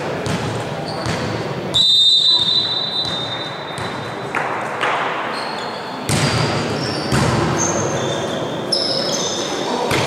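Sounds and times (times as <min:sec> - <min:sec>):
volleyball hits: 0:00.0 - 0:01.5, 0:02.4 - 0:05.3, 0:06.0 - 0:07.6
sneaker squeaks on court: 0:00.2 - 0:01.4, 0:02.4 - 0:04.3, 0:05.2 - 0:10.0.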